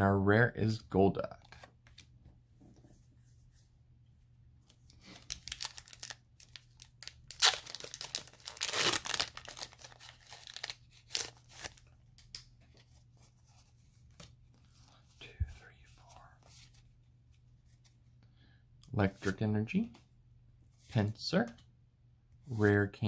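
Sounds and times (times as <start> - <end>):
foil wrapper crinkling: 5.2 - 11.8
foil wrapper tearing: 5.2 - 11.8.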